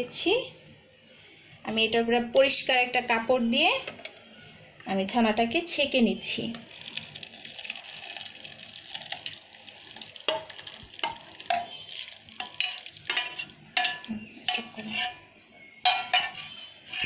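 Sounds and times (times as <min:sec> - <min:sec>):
whey pouring into strainer: 0:06.7 - 0:13.1
metal spoon scraping in pan: 0:10.3 - 0:17.0.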